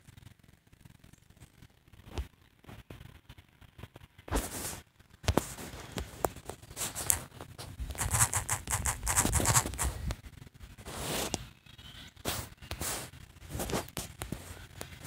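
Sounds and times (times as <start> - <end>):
scratchy brushing on touchscreen: 4.3 - 10.1, 10.8 - 11.4, 12.2 - 15.0
fingers tapping on touchscreen: 7.9 - 10.0.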